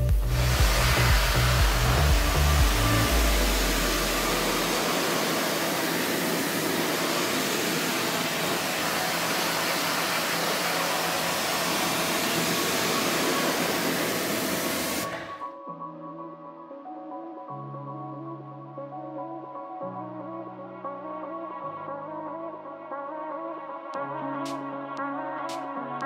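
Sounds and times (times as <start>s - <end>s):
background music bass: 0.0s - 5.9s
pressure washer spraying water: 0.0s - 15.3s.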